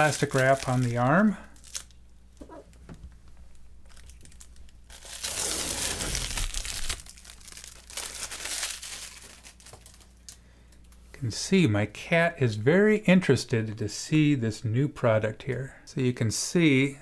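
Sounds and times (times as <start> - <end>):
plastic film peeling and crinkling: 0.0 - 2.5, 3.8 - 10.3.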